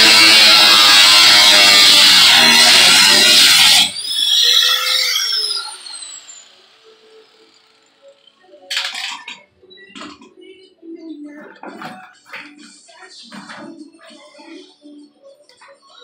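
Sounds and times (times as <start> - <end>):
angle grinder winding down: 0.0 - 8.9.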